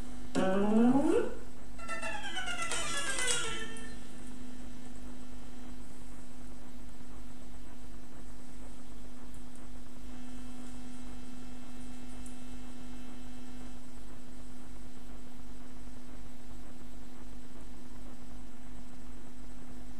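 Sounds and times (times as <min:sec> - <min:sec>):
guitar amplifier humming: 0:00.0 - 0:06.0
faint guitar ringing: 0:01.8 - 0:04.2.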